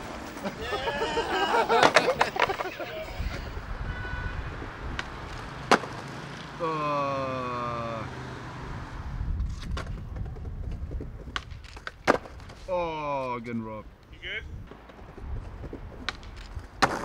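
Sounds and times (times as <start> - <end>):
person shouting: 0.6 - 1.7, 6.6 - 8.1
skateboard clacking on stone ledge: 1.7 - 2.8, 4.9 - 6.1, 9.6 - 12.6, 14.7 - 17.0.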